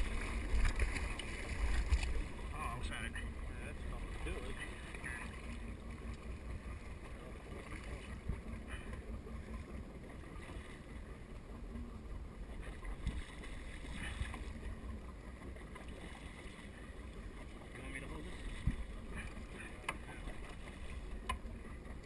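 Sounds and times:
water splashing and sloshing: 0.0 - 22.0
wind rumble on microphone: 18.3 - 19.3.

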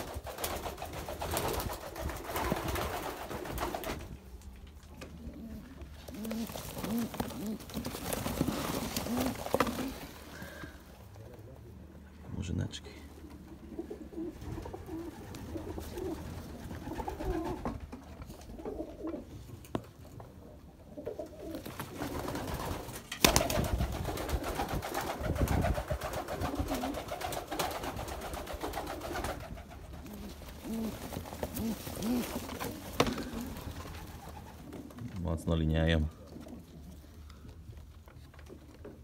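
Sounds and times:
wings flapping and rustling: 0.0 - 11.1, 13.2 - 20.2, 21.0 - 35.2
pigeons cooing: 4.9 - 11.9, 12.9 - 35.1.

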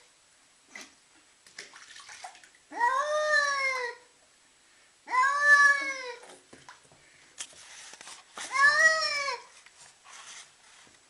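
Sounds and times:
cat wailing: 2.7 - 4.1, 5.1 - 6.3, 8.5 - 9.5.

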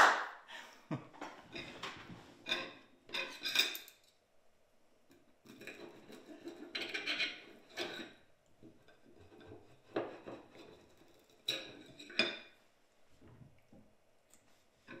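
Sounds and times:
cutlery scraping on a plate: 1.5 - 4.0, 5.4 - 8.2, 8.8 - 12.6.

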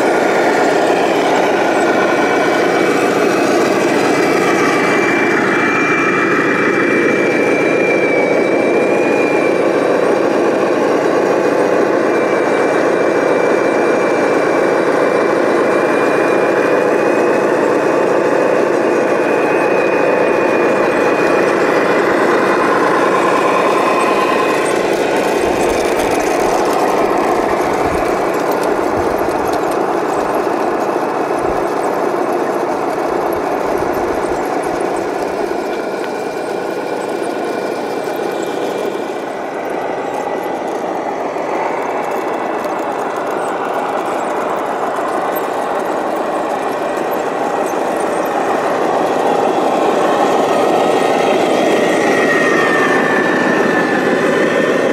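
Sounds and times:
thin high motor whine: 0.0 - 54.9
toy truck engine drone: 0.0 - 54.9
low rumbling of wheels: 14.9 - 54.9.

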